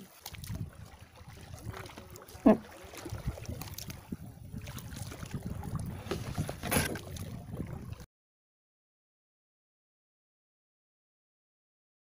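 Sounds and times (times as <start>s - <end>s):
water lapping at a plastic hull: 0.0s - 8.1s
water splash: 0.0s - 8.1s
wind rumbling on microphone: 0.3s - 8.1s.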